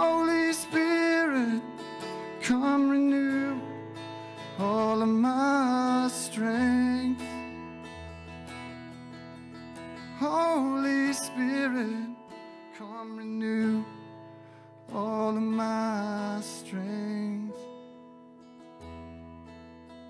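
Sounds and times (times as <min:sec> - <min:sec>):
person singing: 0:00.0 - 0:07.6, 0:10.1 - 0:14.1, 0:14.9 - 0:17.7
strummed acoustic guitar: 0:00.0 - 0:20.0.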